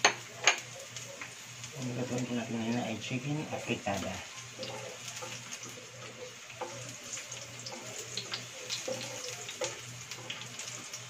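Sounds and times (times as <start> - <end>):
garlic sizzling in hot oil: 0.0 - 11.0
spatula scraping pan: 3.6 - 11.0.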